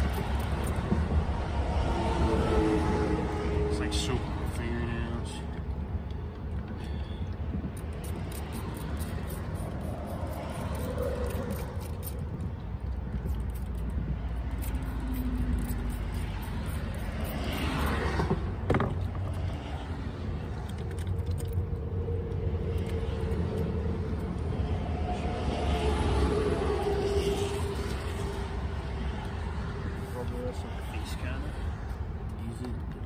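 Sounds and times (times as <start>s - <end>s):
low vehicle rumble: 0.0s - 33.0s
spray bottle squirting: 7.8s - 12.2s.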